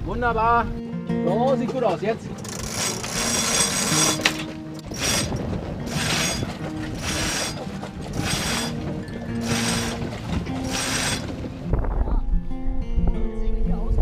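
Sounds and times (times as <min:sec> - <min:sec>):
halyard line hauled through blocks: 0:02.4 - 0:11.5.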